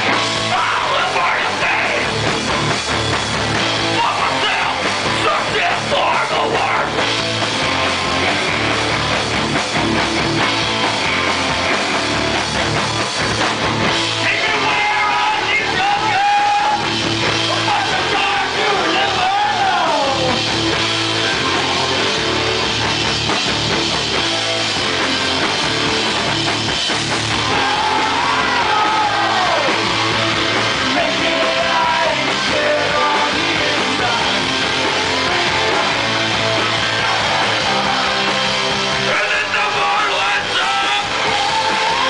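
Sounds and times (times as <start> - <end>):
heavy rock band playing live: 0.0 - 42.0
person singing: 30.8 - 36.2.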